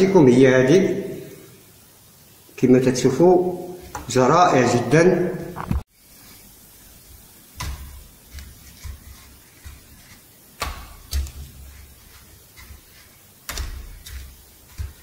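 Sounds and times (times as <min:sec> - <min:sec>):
gritty sugar scrapes: 0:08.3 - 0:15.0.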